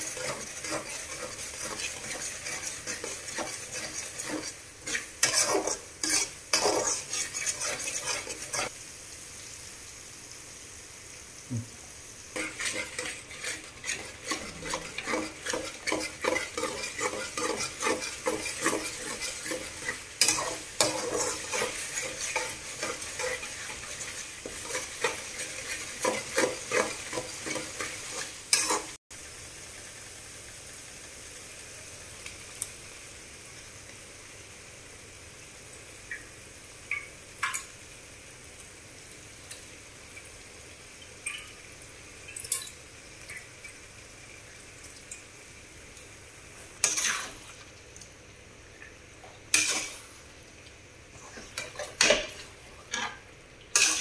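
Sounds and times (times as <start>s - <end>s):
spoon scraping a pan: 0.0s - 8.7s, 12.3s - 29.0s, 46.8s - 47.6s, 49.5s - 50.2s, 51.1s - 54.0s
gravy sizzling: 0.0s - 54.0s.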